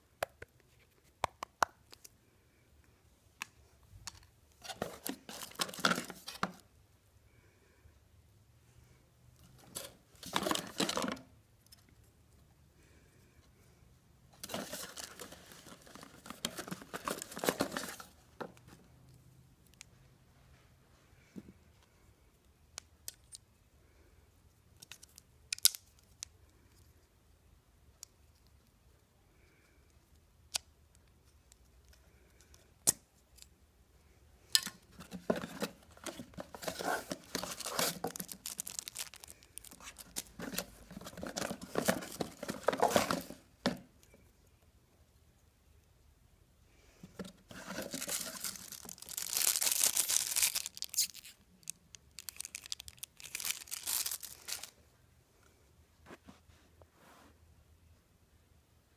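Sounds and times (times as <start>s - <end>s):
packaging rustling and crinkling: 4.6s - 6.6s, 9.7s - 11.2s, 14.4s - 18.1s, 34.9s - 43.8s, 47.2s - 54.8s
sharp clicks and snaps: 24.8s - 26.3s.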